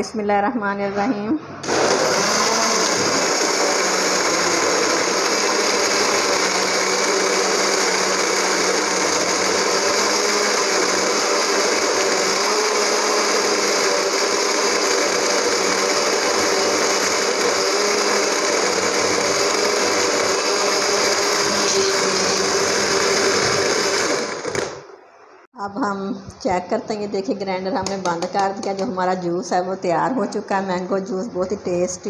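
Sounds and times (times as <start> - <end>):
blender motor humming: 1.6 - 24.8.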